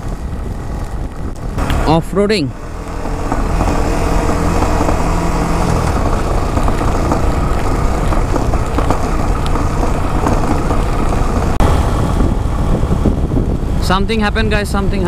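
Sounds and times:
motorcycle engine running: 0.0s - 13.9s
wind and road noise: 0.0s - 15.0s.

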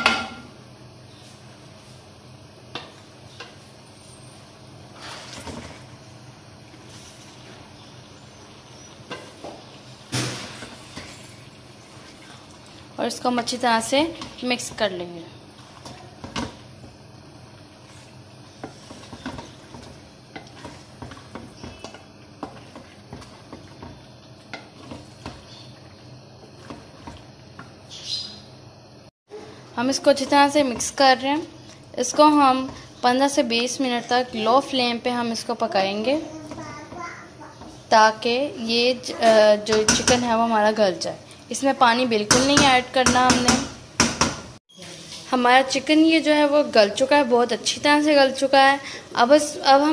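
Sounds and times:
wet mixture squelching: 10.8s - 27.9s
wooden spoon scraping steel pan: 18.5s - 24.0s.

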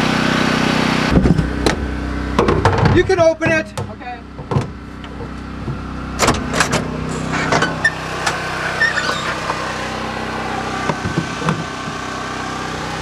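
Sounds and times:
low mechanical hum: 0.0s - 13.0s
knocks and clunks of gear: 2.4s - 8.4s.

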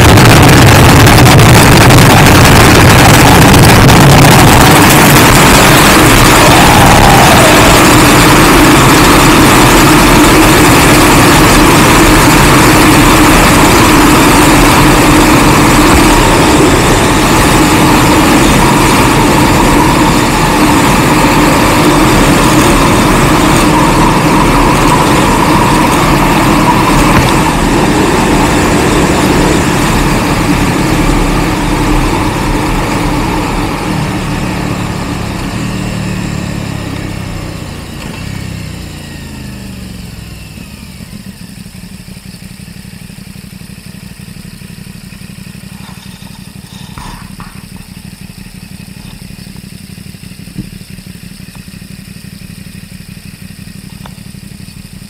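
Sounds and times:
wind rush over microphone: 0.0s - 9.2s
motorcycle engine running: 0.0s - 55.0s.

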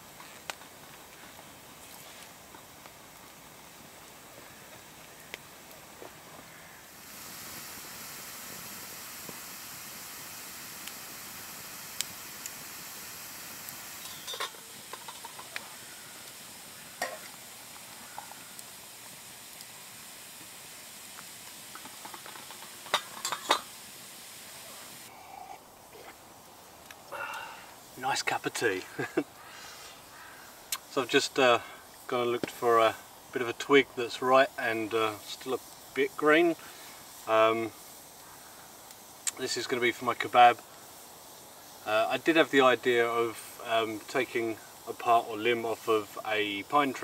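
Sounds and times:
campfire hissing and crackling: 0.0s - 47.0s
metal mug and pot clinking: 14.0s - 15.6s, 22.1s - 23.7s.

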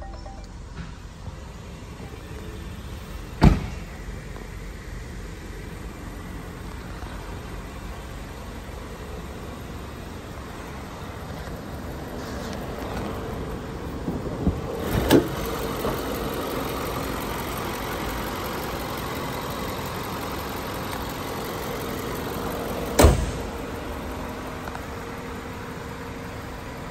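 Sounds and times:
car engine idling: 0.0s - 26.9s
car hood slamming: 3.4s - 3.9s, 23.0s - 23.6s.

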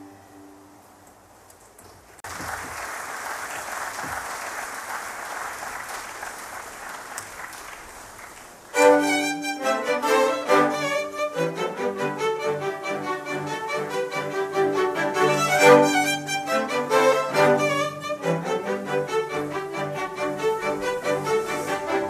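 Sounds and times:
audience applauding: 2.2s - 8.9s
string orchestra playing: 8.7s - 22.0s.

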